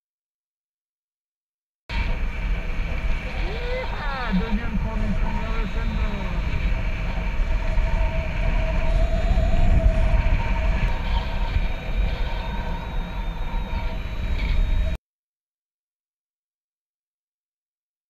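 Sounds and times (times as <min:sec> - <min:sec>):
thin steady whine: 0:01.9 - 0:15.0
wind rumble on microphone: 0:01.9 - 0:15.0.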